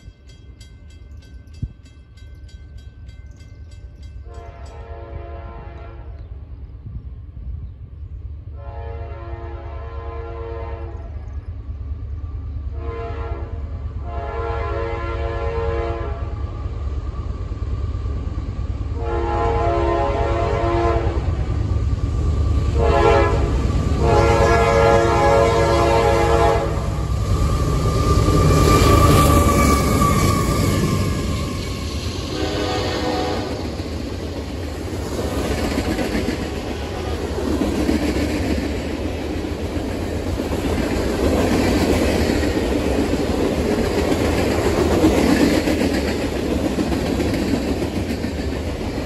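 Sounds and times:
train wheels on rail: 0:00.0 - 0:09.6, 0:10.2 - 0:49.0
locomotive horn blasts: 0:04.2 - 0:06.2, 0:08.6 - 0:11.2, 0:12.7 - 0:16.4, 0:19.0 - 0:21.3, 0:22.8 - 0:27.0, 0:32.3 - 0:33.6, 0:36.7 - 0:37.3.

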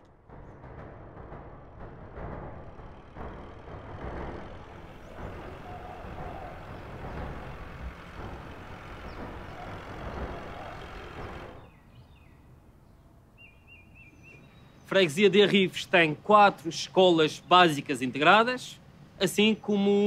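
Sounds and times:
truck engine running: 0:00.0 - 0:13.3
outdoor traffic noise: 0:00.0 - 0:20.0
faint bird chirps: 0:09.0 - 0:15.0.

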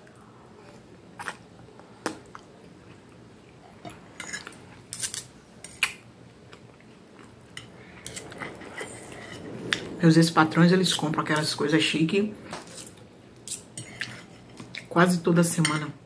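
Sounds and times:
cutlery scraping on a plate: 0:03.8 - 0:05.8, 0:12.5 - 0:14.9.

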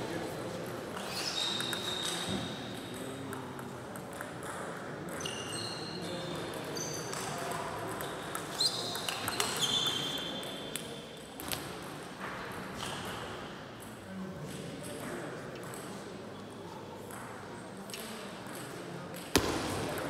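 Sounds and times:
murmur of voices: 0:00.0 - 0:20.0
shoes squeaking on floor: 0:01.0 - 0:02.5, 0:08.5 - 0:10.2.

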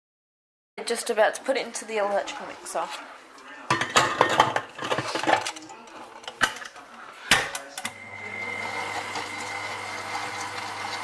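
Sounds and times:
stand mixer motor humming: 0:07.9 - 0:11.0.

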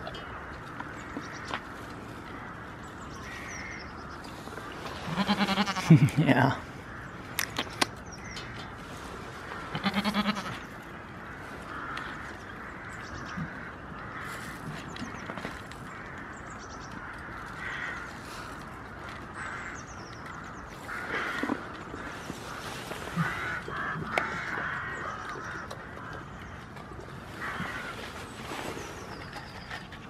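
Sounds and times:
bird calls: 0:00.0 - 0:30.0
goat bleating: 0:05.1 - 0:06.0, 0:09.7 - 0:10.6.

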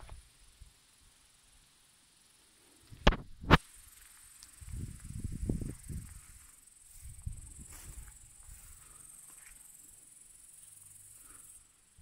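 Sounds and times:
insects chirring: 0:00.0 - 0:12.0.

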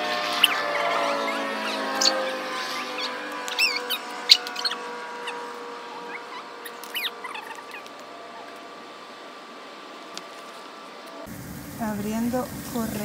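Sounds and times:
high squeaky chirps: 0:00.1 - 0:08.6.

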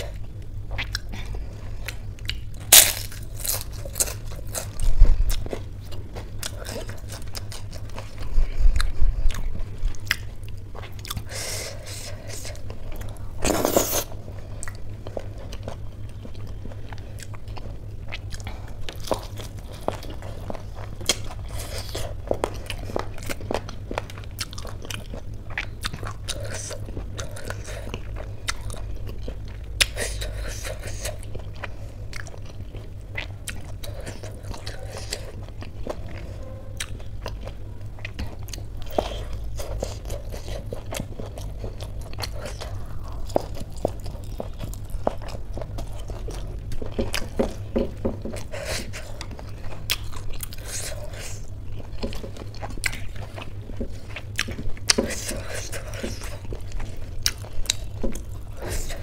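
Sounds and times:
steady low hum: 0:00.0 - 0:59.0
wet chewing and smacking: 0:00.0 - 0:59.0
crisp crunches of fried food: 0:02.0 - 0:09.0.

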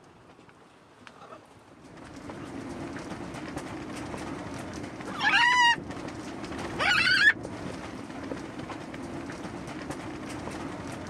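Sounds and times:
background rush: 0:01.5 - 0:11.0
parrot squawking: 0:06.8 - 0:07.4.

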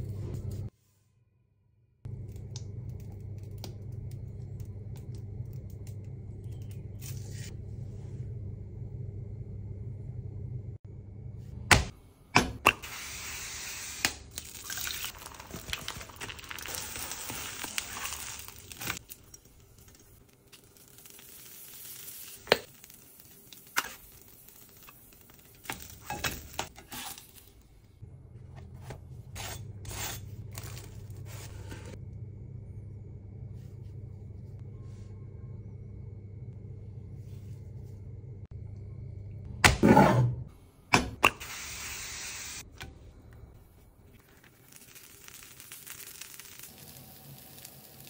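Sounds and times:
low steady hum: 0:02.0 - 0:12.7, 0:14.4 - 0:41.2.

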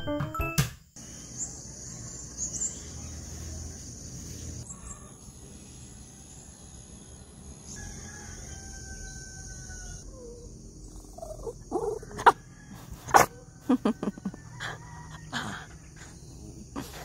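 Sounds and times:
high insect drone: 0:01.0 - 0:17.0
faint rooster crow: 0:07.7 - 0:10.4, 0:12.0 - 0:16.0
dog yipping and barking: 0:11.2 - 0:12.4, 0:13.1 - 0:13.5.

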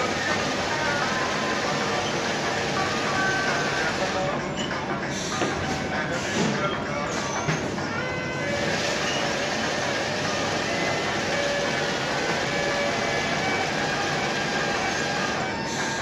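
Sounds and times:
conveyor machinery running: 0:00.0 - 0:16.0.

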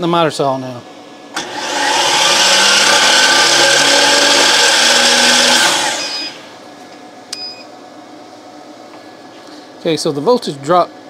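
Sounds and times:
miter saw motor running: 0:01.4 - 0:06.5.

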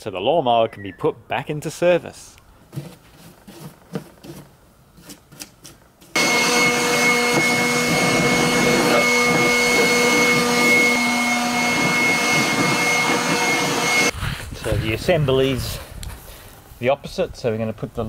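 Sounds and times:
machine drone with whine: 0:06.2 - 0:14.1.

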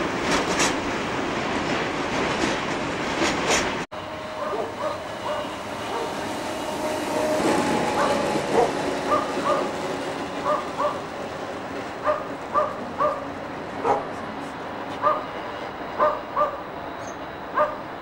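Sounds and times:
dog barking: 0:04.4 - 0:06.2, 0:08.0 - 0:09.7, 0:10.4 - 0:11.0, 0:12.0 - 0:14.2, 0:15.0 - 0:15.3, 0:16.0 - 0:16.6, 0:17.6 - 0:17.8.

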